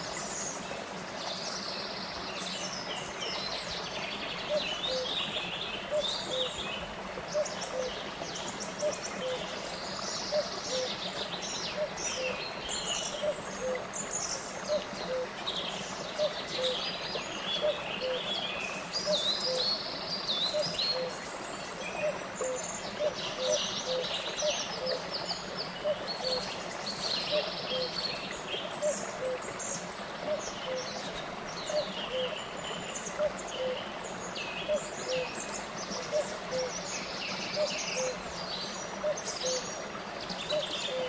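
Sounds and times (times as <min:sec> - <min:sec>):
stream rushing over rocks: 0:00.0 - 0:41.0.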